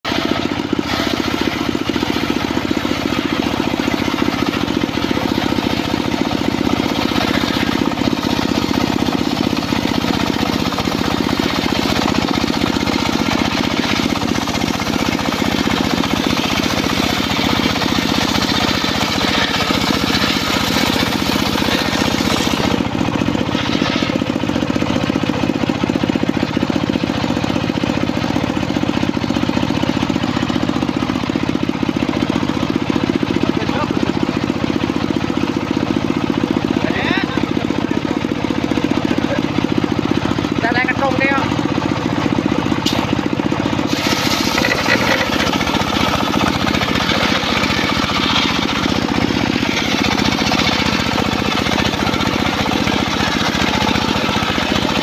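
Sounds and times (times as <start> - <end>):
engine running under load: 0.0 - 55.0
saw blade cutting wood: 0.1 - 24.5, 42.8 - 43.2, 43.8 - 55.0.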